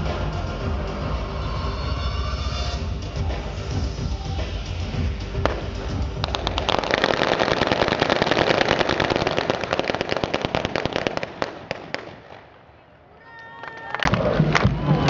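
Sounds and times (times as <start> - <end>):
low rumble: 0.0 - 7.1
blank gunfire crackle: 5.4 - 12.8.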